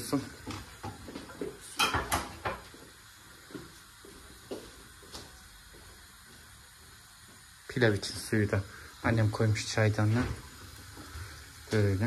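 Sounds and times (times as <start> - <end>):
kitchen knocks and clinks: 1.8 - 2.7.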